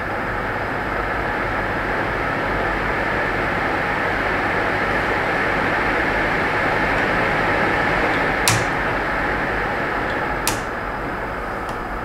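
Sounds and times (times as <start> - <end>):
duct fan rushing air: 2.6 - 12.0
speed controller knob clicks: 8.5 - 9.0, 10.1 - 10.8.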